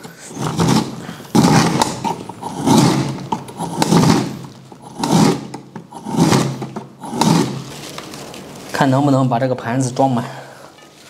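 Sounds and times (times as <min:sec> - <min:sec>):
slicer blade scraping through frozen meat: 0:00.2 - 0:08.4.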